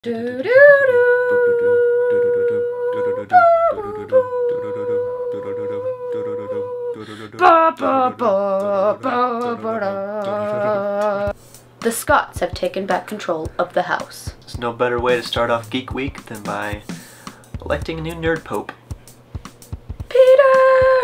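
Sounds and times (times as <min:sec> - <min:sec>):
rhythmic vocal pulse: 0:00.0 - 0:21.0
people humming a tune: 0:01.5 - 0:11.4, 0:15.0 - 0:18.4.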